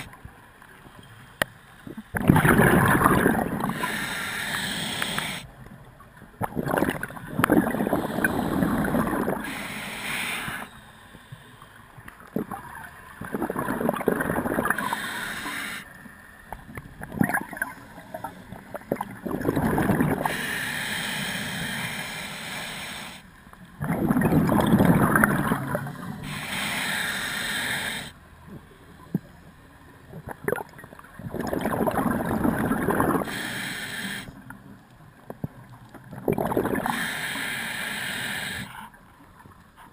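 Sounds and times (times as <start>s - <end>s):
exhaled bubbles gurgling: 1.9s - 5.4s, 6.3s - 10.7s, 12.2s - 15.8s, 16.7s - 23.1s, 23.8s - 28.1s, 30.1s - 33.7s, 35.4s - 37.6s
regulator inhale hiss: 3.6s - 5.5s, 7.8s - 11.8s, 14.7s - 16.4s, 20.2s - 23.4s, 25.9s - 28.2s, 33.1s - 34.5s, 36.8s - 38.8s.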